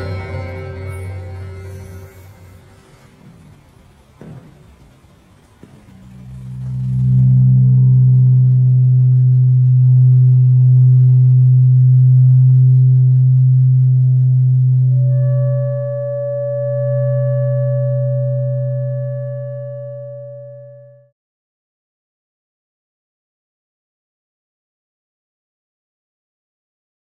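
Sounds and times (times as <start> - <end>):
higher drone tones: 0.0 - 3.8, 5.7 - 21.1
low droning hum: 0.0 - 21.1
clear high tone: 6.6 - 21.1.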